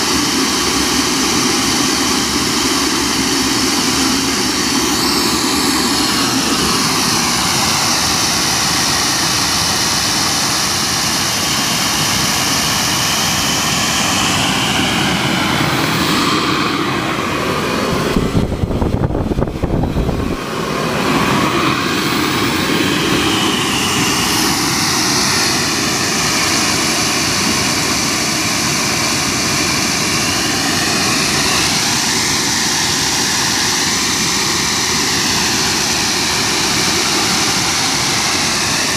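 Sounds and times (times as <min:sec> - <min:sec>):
jet engine whine: 0:00.0 - 0:38.9
loud low rumble: 0:14.4 - 0:22.2.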